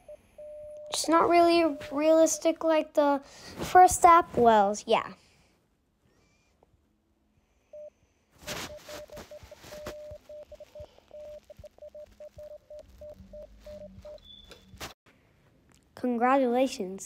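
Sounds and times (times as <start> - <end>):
soft rustle: 8.4 - 15.0
morse code beeping: 8.5 - 14.6.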